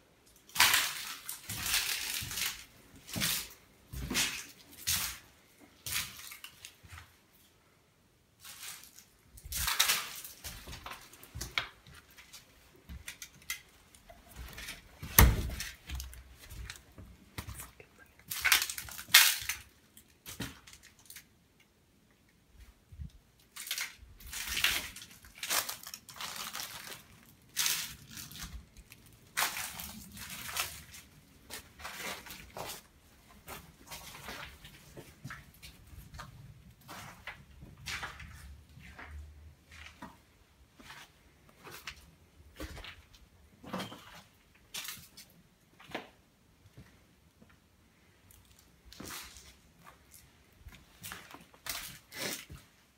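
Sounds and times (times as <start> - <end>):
footsteps crunching on rubble: 14.2 - 17.7, 24.2 - 45.2.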